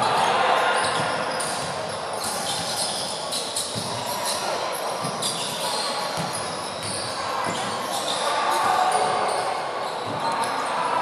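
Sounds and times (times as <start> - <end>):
basketball bouncing on court: 0.1 - 4.1, 5.0 - 8.0.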